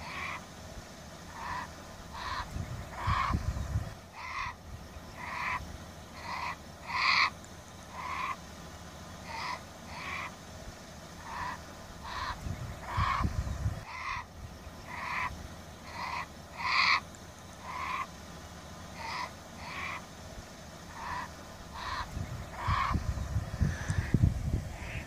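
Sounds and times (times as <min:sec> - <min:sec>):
bear cubs bawling: 0:01.2 - 0:08.5, 0:09.2 - 0:10.4, 0:11.1 - 0:18.3, 0:18.9 - 0:24.2.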